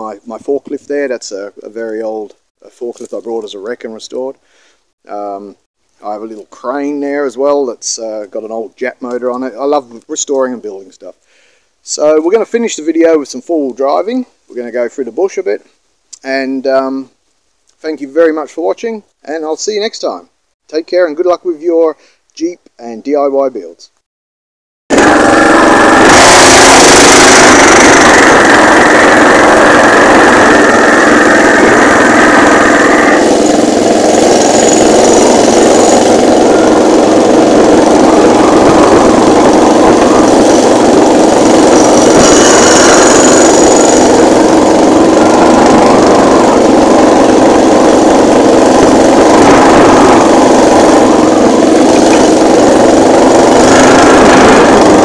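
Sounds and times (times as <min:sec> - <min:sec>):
small petrol engine running: 0:24.9 - 0:55.0.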